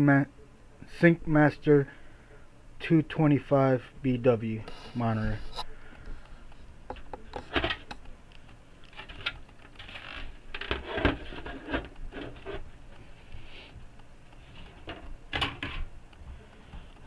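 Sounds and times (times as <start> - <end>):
plastic parts clicking and scraping: 6.9 - 12.7.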